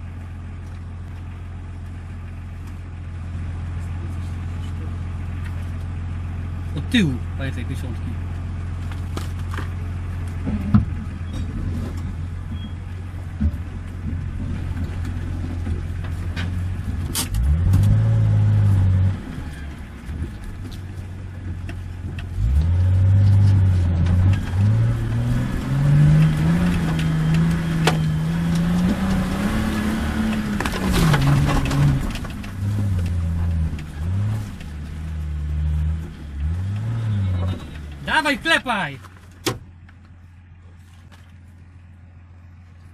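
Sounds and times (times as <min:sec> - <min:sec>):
engine revving: 0:16.4 - 0:20.2, 0:22.3 - 0:38.8.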